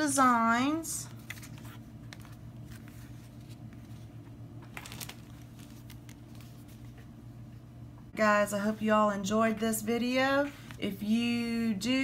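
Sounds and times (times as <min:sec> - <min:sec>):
steady low hum: 0:00.0 - 0:12.0
paper rustling: 0:01.1 - 0:07.1.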